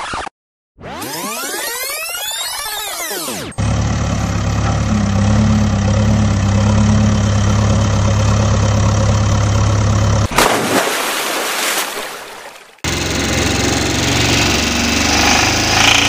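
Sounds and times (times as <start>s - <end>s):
heavy engine idling: 3.6s - 10.3s, 12.8s - 16.0s
splash into water: 10.3s - 12.8s.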